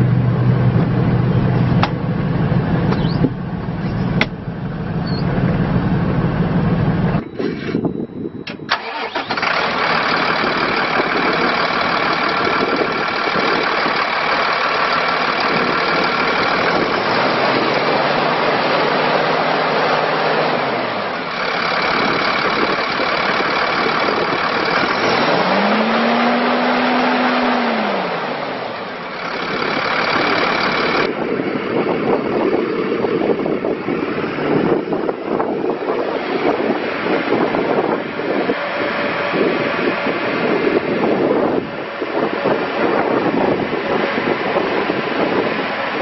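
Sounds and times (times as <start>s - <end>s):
diesel truck engine revving: 0.0s - 46.0s
wind on microphone: 7.1s - 8.7s, 15.2s - 19.2s, 29.4s - 46.0s.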